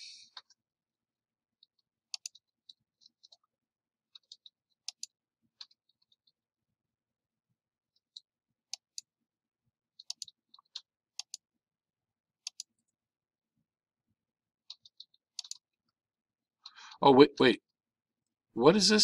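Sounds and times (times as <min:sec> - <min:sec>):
computer mouse clicks: 0:01.7 - 0:03.4, 0:04.2 - 0:06.3, 0:10.0 - 0:11.4, 0:12.4 - 0:12.8, 0:14.7 - 0:15.7.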